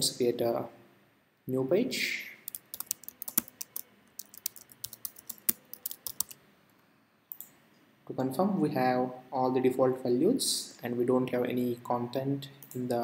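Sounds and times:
typing on computer keyboard: 2.5s - 6.4s.

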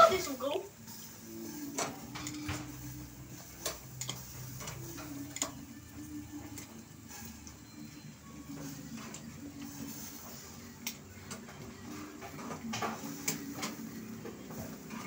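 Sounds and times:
tongs clicking on grill grate: 3.4s - 5.7s, 10.8s - 11.4s.

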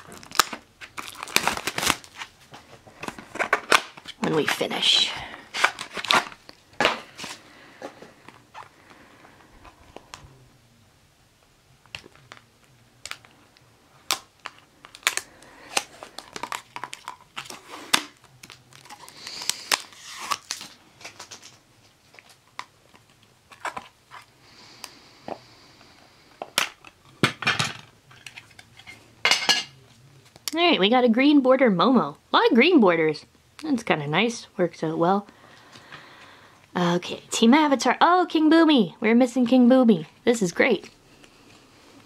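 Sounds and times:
wrapper crinkling: 0.0s - 7.5s, 11.9s - 24.3s.

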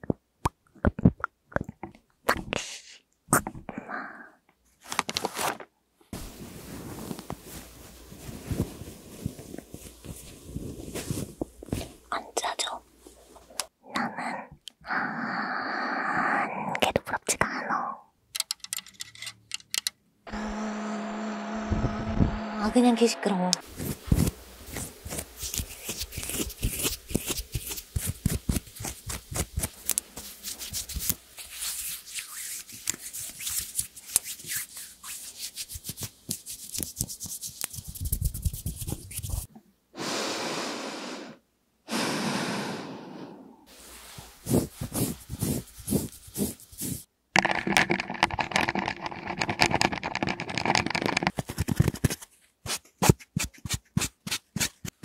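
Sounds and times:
fingernails scratching palms: 23.6s - 39.5s, 44.4s - 55.0s
sponge patting hand: 23.6s - 39.5s, 44.0s - 55.0s.

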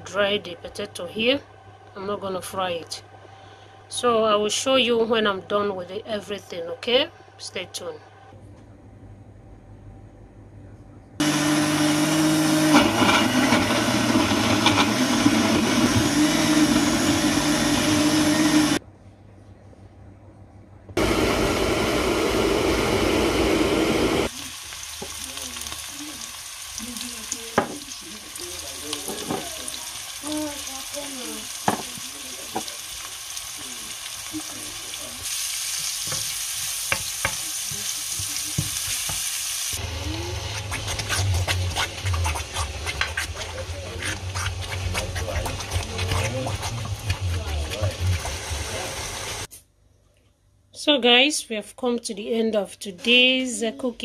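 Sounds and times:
blender running: 11.2s - 18.8s, 21.0s - 26.4s, 43.1s - 49.5s
spatula scraping and knocking: 12.7s - 16.2s, 40.5s - 48.8s
onions sizzling in hot oil: 24.1s - 43.4s, 45.6s - 49.5s.

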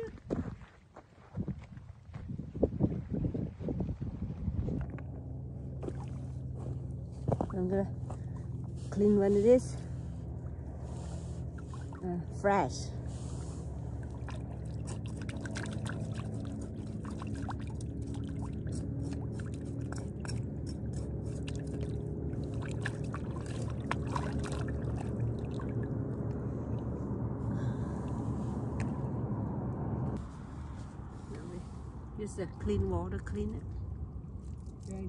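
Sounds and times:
low hum: 1.7s - 35.0s
water splashing: 13.2s - 20.3s, 21.3s - 26.0s.

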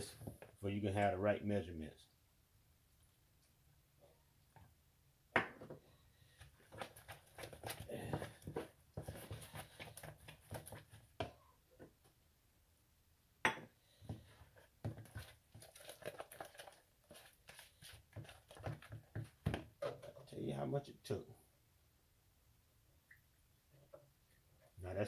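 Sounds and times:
fork stirring batter: 6.2s - 11.4s, 14.0s - 20.2s.

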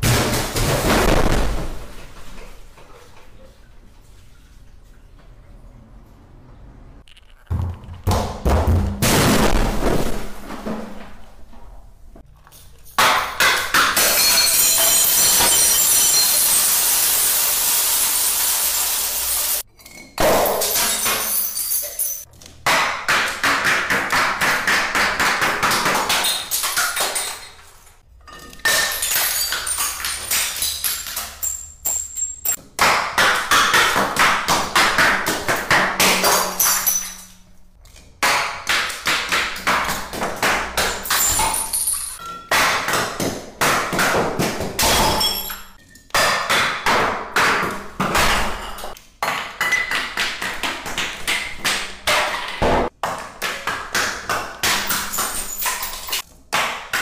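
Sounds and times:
glass bottles clinking down stairs: 12.5s - 18.3s, 19.6s - 22.3s, 25.6s - 32.6s, 36.0s - 37.6s, 39.8s - 42.9s, 44.7s - 46.6s, 48.0s - 50.2s, 54.5s - 56.2s
glass smashing: 13.0s - 22.3s, 28.3s - 32.6s, 36.1s - 37.4s, 40.8s - 42.8s, 44.8s - 46.5s, 54.6s - 56.2s.

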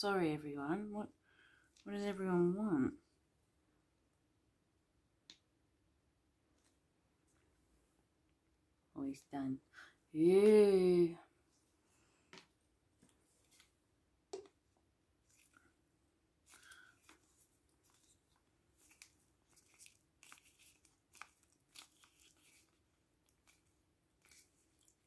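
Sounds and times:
plastic tube and bottle crinkling: 12.3s - 14.6s, 15.2s - 15.8s, 16.4s - 25.0s.

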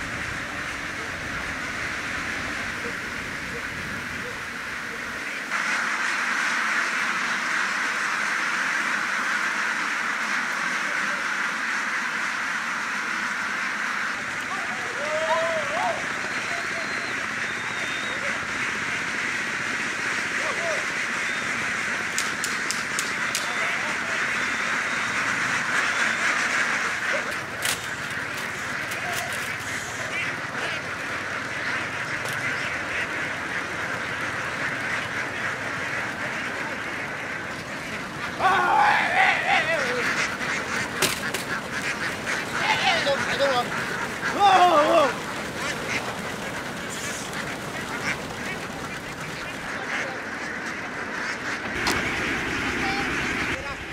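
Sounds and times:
flock of ducks quacking: 0.0s - 53.9s.

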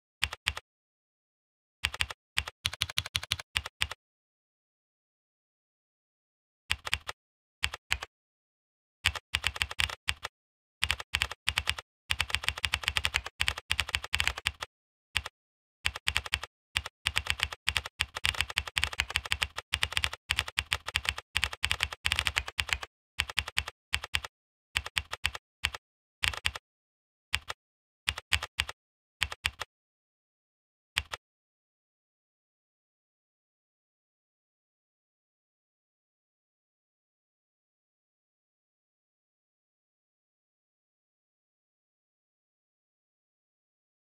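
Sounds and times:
keyboard typing: 0.2s - 0.6s, 1.8s - 4.0s, 6.7s - 8.1s, 9.1s - 15.3s, 15.9s - 26.6s, 27.4s - 29.7s, 31.0s - 31.2s.

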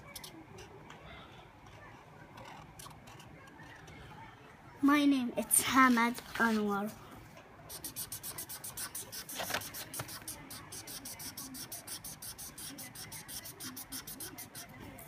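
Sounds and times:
marker scribbling on paper: 7.7s - 15.0s.

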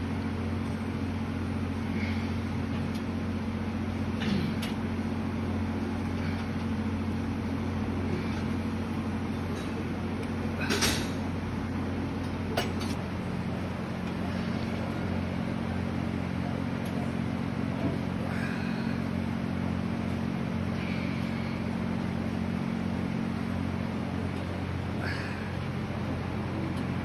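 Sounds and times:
low mechanical hum: 0.0s - 27.0s.

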